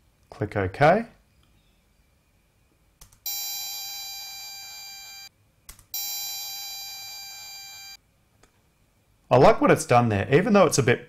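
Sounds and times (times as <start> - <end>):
bright high-pitched tone: 3.3 - 5.3, 6.0 - 8.0.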